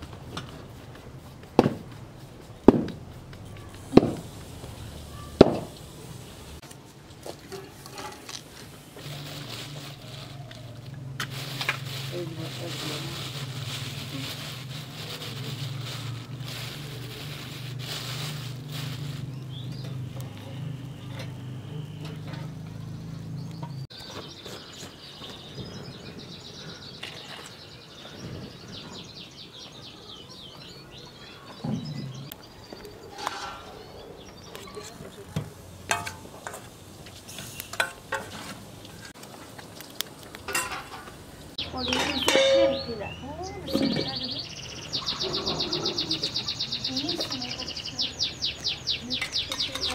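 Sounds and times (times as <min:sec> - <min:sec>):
low sizzle: 0:02.0 - 0:23.8, 0:33.1 - 0:43.6
plastic bag rustling: 0:06.8 - 0:20.7
bird chirp: 0:19.0 - 0:35.4, 0:41.4 - 0:49.9
metal spoon scraping steel bowl: 0:41.9 - 0:42.9.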